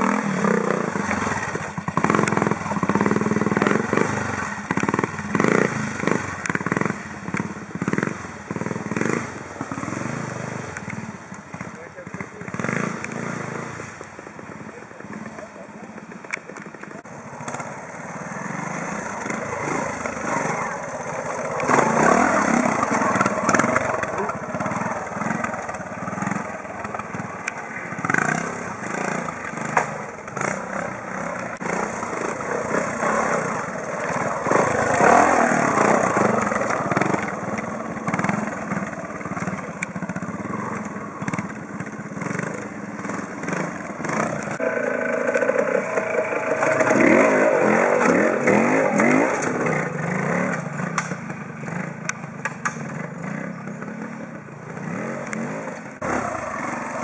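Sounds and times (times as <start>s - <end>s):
motorcycle engines revving: 0.0s - 57.0s.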